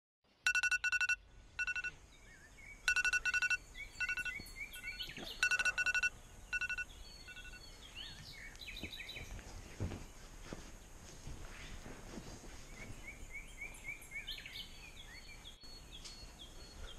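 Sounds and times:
birds chirping faintly: 0.3 - 16.9
phone alarm beeping: 0.5 - 2.0, 2.9 - 7.6.

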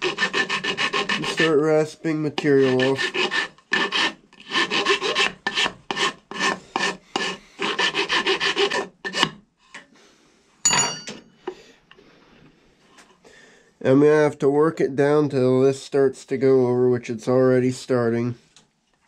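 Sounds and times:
hand rasp scraping wood: 0.0 - 9.4
metallic clink of rasp set down: 10.6 - 11.3.

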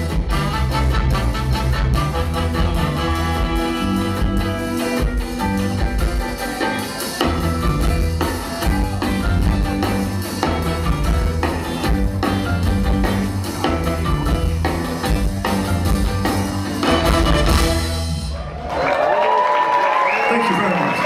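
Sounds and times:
horn section: 0.0 - 5.4, 16.7 - 18.4
live band playing: 0.0 - 21.0.

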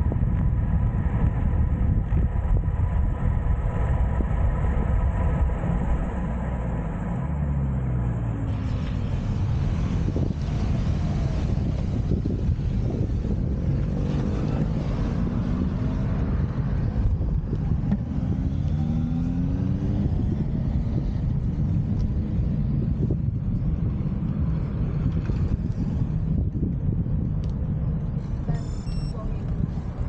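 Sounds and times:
wind buffeting microphone: 0.0 - 7.1, 8.4 - 30.0
vehicle engine revving: 1.1 - 23.3.

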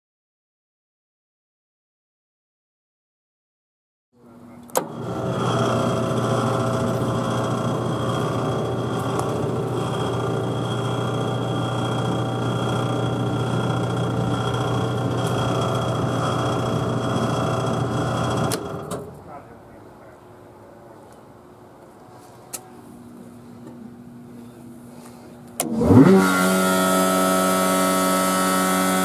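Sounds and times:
siren mechanical drone: 4.9 - 18.6, 25.7 - 29.0.

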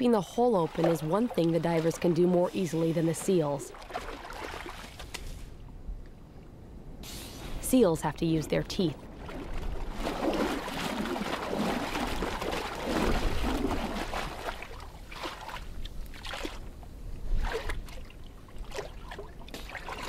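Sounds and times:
water sloshing and gurgling: 0.0 - 5.9, 8.6 - 20.0
small splashes and slush clicks: 0.6 - 5.4, 9.2 - 16.7, 17.4 - 20.0.

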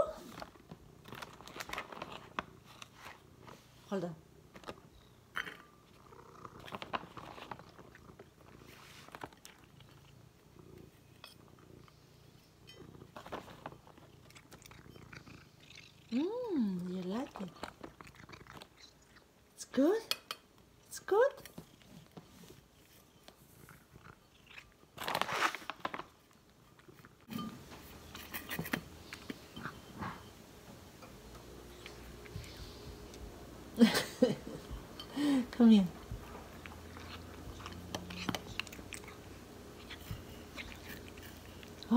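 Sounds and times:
cat chewing and lapping: 5.8 - 19.7, 20.8 - 33.8, 34.6 - 41.9
cat purring: 5.9 - 19.6, 27.8 - 41.9.

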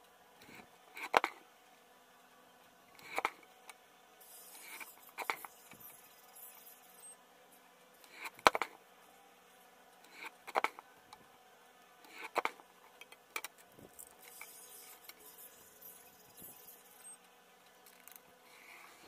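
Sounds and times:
paper and ruler scraping and clicking: 4.2 - 7.1, 13.4 - 17.2.

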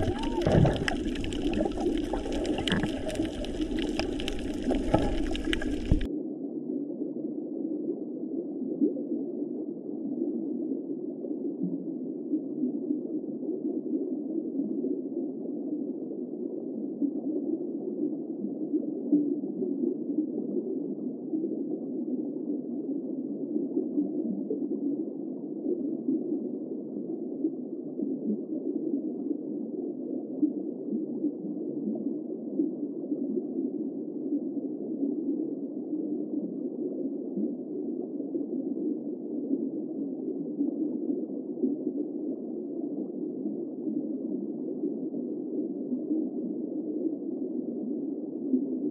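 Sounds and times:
muffled underwater rush: 0.0 - 6.1.

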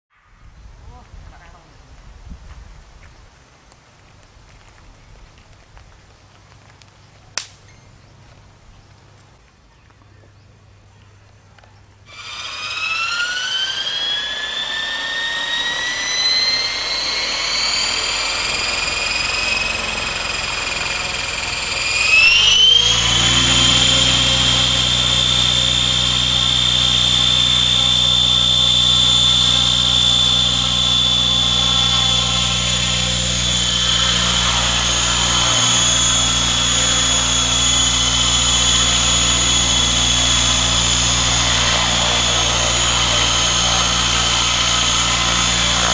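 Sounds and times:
rc helicopter motor whine: 12.0 - 45.9
spinning rotor hum: 12.1 - 45.9.

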